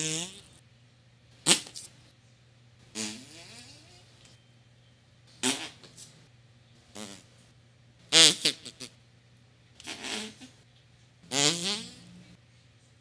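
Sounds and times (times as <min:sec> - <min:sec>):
fart sound effects: 0:00.0 - 0:00.6, 0:01.4 - 0:01.8, 0:02.9 - 0:04.0, 0:05.4 - 0:06.0, 0:06.9 - 0:07.3, 0:08.1 - 0:08.9, 0:09.8 - 0:10.5, 0:11.3 - 0:12.1.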